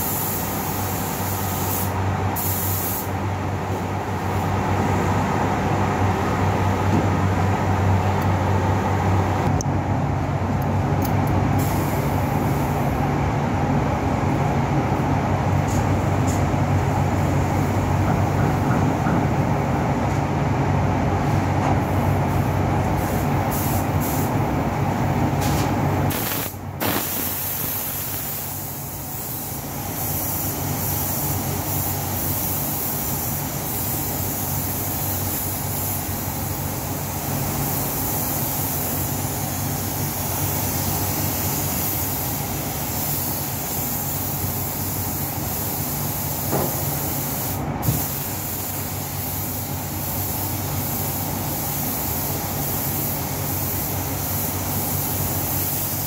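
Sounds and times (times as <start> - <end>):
spray gun air hiss: 0.0 - 5.2, 11.6 - 13.0, 15.6 - 19.2, 21.2 - 24.4, 25.3 - 56.0
ventilation fans humming: 0.0 - 56.0.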